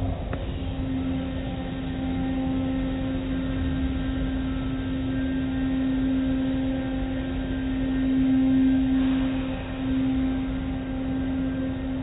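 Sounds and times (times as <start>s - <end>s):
car wash machinery humming: 0.0s - 12.0s.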